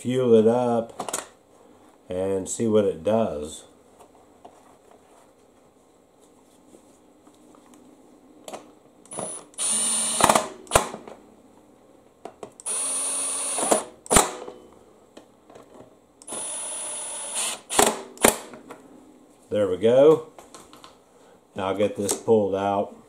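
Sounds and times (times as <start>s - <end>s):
cordless driver spinning: 9.1s - 10.5s, 12.6s - 13.9s.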